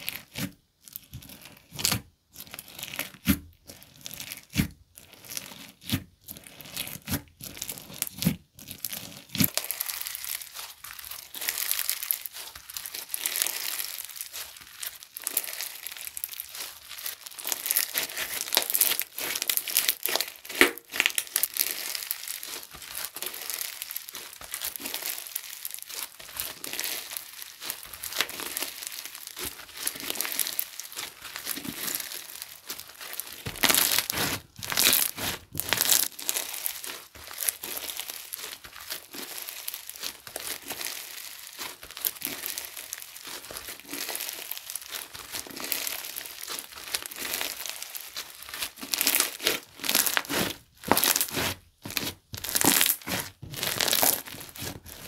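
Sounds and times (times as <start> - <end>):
slime squelching and crackling: 0.0 - 55.0.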